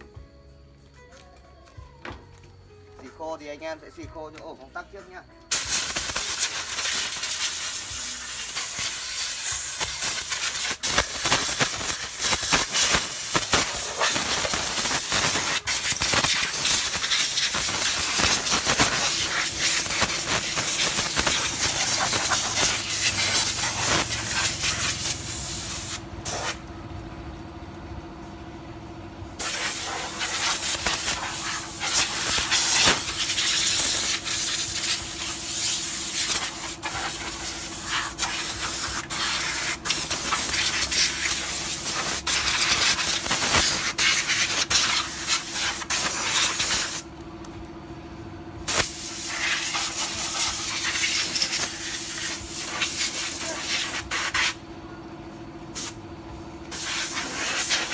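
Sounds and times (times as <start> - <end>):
steady hum: 5.4 - 57.9
air blow gun hissing: 5.5 - 26.6, 29.4 - 47.0, 48.7 - 54.6, 55.8 - 56.0, 56.7 - 57.9.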